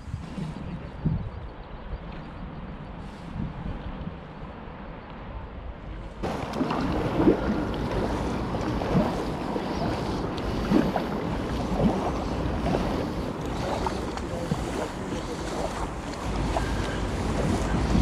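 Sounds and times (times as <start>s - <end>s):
wind noise on microphone: 0.0s - 18.0s
paddle splashing water: 5.8s - 18.0s.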